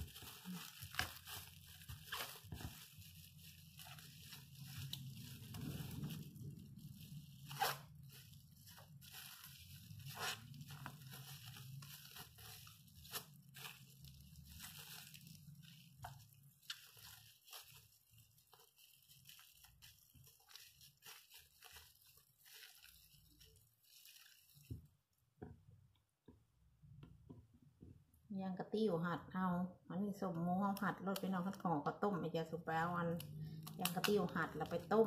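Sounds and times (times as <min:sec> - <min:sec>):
plastic wrap snapping: 0:00.0 - 0:24.9, 0:30.7 - 0:31.6, 0:33.1 - 0:35.0
plastic wrap crinkling: 0:00.0 - 0:25.3, 0:30.6 - 0:35.0.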